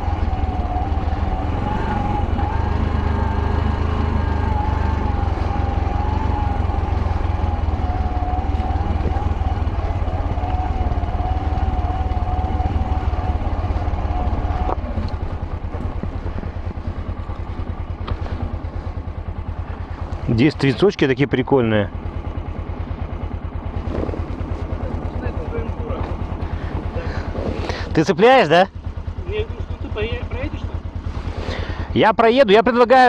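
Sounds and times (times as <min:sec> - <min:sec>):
wavering whine: 0:00.0 - 0:19.3
motorcycle engine running: 0:00.0 - 0:33.0.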